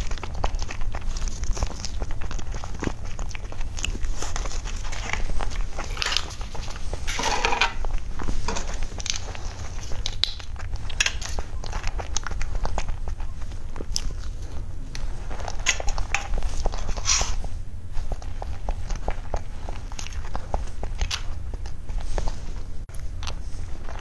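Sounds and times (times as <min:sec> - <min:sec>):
wet chewing noises: 0:00.0 - 0:24.0
spoon scraping plastic tray: 0:07.0 - 0:07.8, 0:16.2 - 0:17.4.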